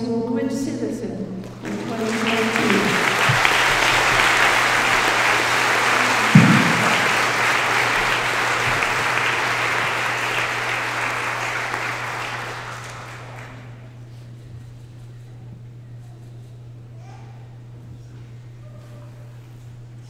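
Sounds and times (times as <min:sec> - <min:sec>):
audience applauding: 0:01.4 - 0:13.9
loud low thump: 0:06.2 - 0:08.1.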